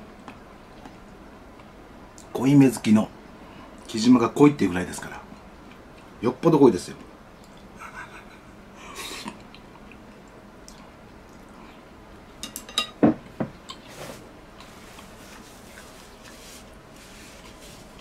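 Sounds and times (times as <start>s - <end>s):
soft brushing sounds: 13.8s - 18.0s.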